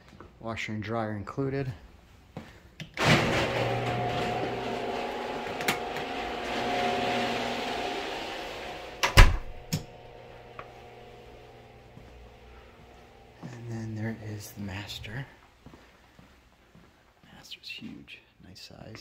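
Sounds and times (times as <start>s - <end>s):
door shutting and latching: 3.0s - 4.6s, 5.4s - 10.0s.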